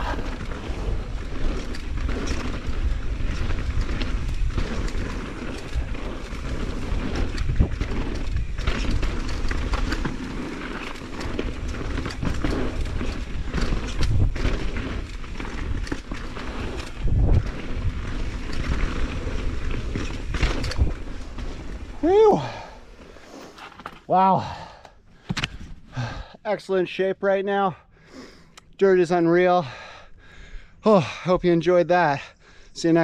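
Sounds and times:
wind buffeting microphone: 0.0s - 9.9s, 16.5s - 22.6s
bike rattling over bumps: 0.0s - 26.2s
tyres rolling over dirt: 0.0s - 26.3s.

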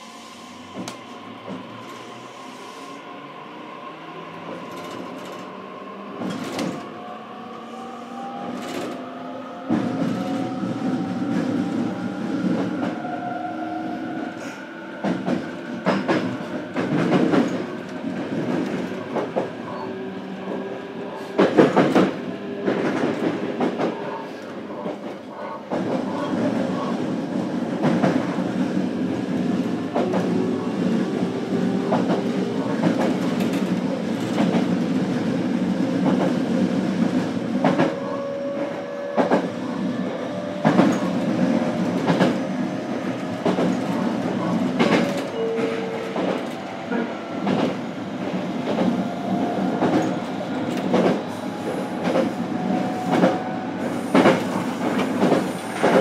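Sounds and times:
wheels rumbling on rail: 0.0s - 56.0s
rail-joint clicks: 15.0s - 26.9s, 40.5s - 42.4s, 43.1s - 56.0s.

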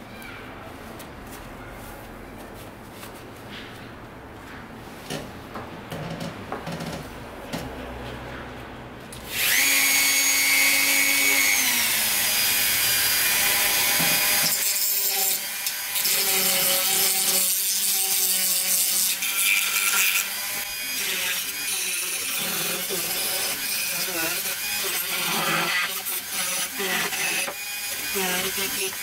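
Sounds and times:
rotary tool sanding wood: 9.3s - 29.0s.

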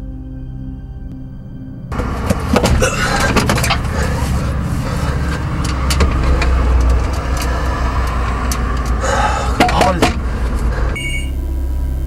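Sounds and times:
droning music: 0.0s - 12.0s
road traffic rumble: 1.9s - 12.0s
clicks and knocks: 2.0s - 3.9s.

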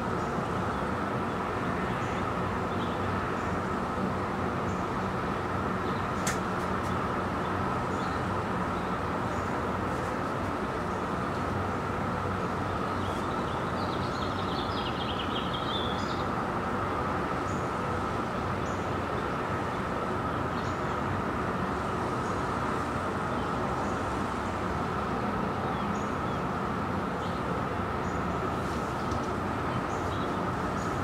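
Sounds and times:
distant traffic hum: 0.0s - 31.0s
birds chirping: 10.6s - 16.4s, 25.0s - 31.0s.

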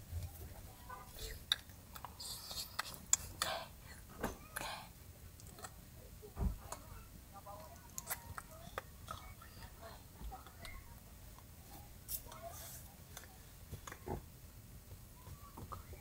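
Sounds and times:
faint soft voice: 0.0s - 14.3s, 15.0s - 16.0s.

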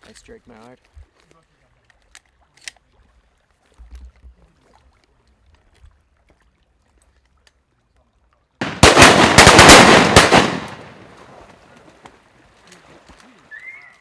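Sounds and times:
echoing shotgun blasts: 8.6s - 11.2s.

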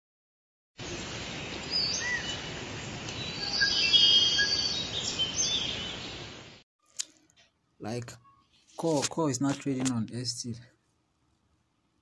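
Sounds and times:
bird chirps and whistles: 3.2s - 6.0s.

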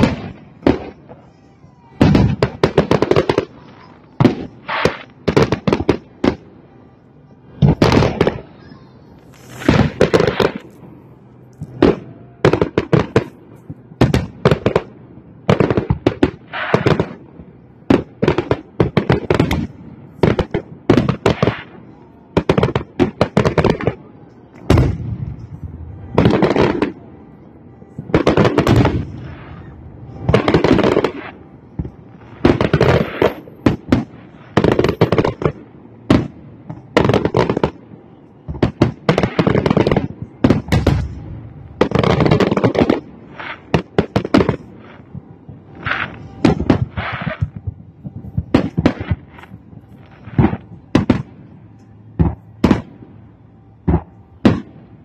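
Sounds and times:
fireworks booming and crackling: 0.0s - 55.0s.

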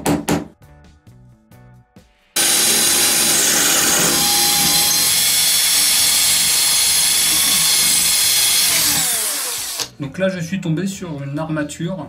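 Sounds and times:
electric drill drilling into wall: 2.4s - 9.9s.

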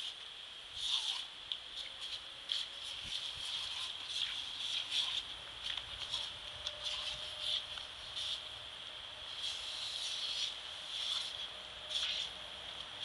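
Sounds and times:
water jet spraying: 0.8s - 8.4s, 9.3s - 13.0s.

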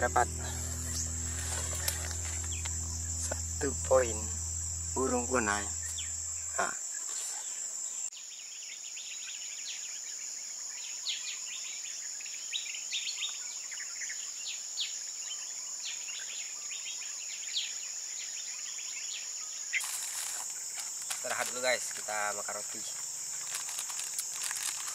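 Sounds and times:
high-pitched insect drone: 0.0s - 8.1s, 19.8s - 24.9s.

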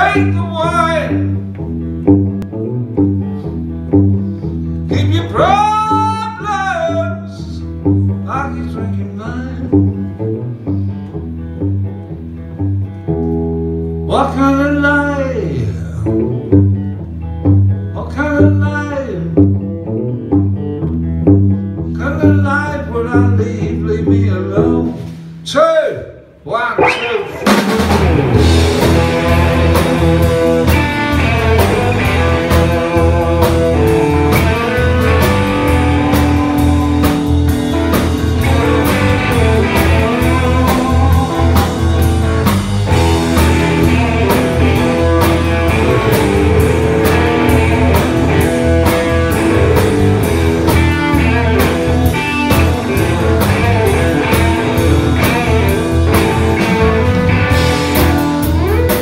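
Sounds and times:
electric guitar: 0.0s - 25.4s, 26.7s - 59.0s
bass guitar: 0.0s - 59.0s
drum kit: 26.8s - 59.0s.

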